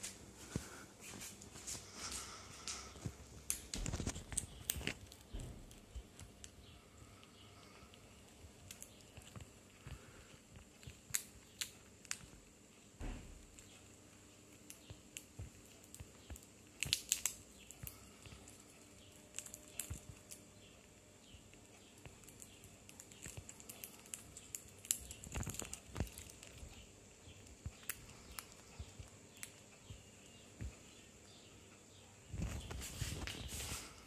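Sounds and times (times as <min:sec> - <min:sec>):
parrot beak crunching nut: 0:10.6 - 0:12.4, 0:14.6 - 0:20.5, 0:21.5 - 0:26.7.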